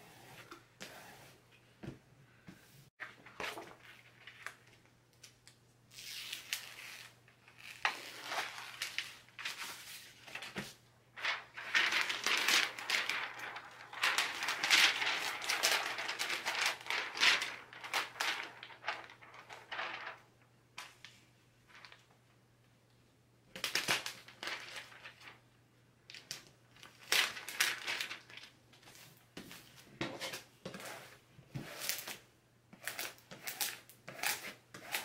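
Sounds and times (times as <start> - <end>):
plastic sheet crinkling: 6.4 - 20.3, 23.6 - 25.4, 26.1 - 28.6.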